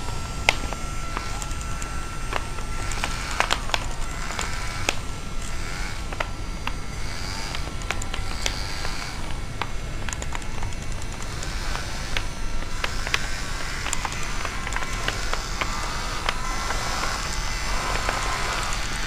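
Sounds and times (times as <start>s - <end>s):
clicks and crackles: 0.0s - 19.0s
small motors whirring: 0.0s - 19.0s.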